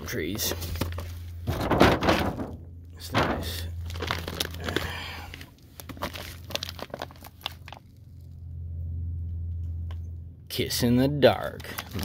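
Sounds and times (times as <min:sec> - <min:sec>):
low steady hum: 0:00.0 - 0:12.0
cardboard boxes rustling and knocking: 0:00.5 - 0:04.8.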